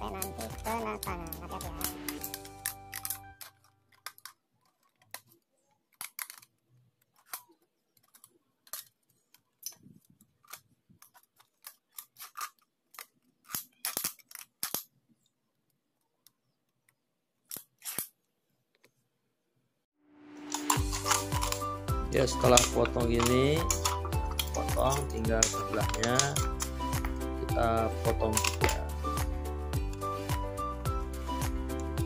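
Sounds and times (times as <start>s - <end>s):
scissors cutting drink can: 0.0s - 4.3s, 10.5s - 14.9s, 17.5s - 18.1s, 20.6s - 27.1s, 28.0s - 28.9s.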